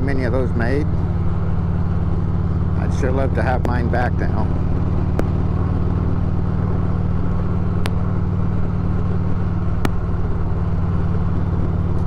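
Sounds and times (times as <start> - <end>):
motorcycle engine droning: 0.0 - 12.0.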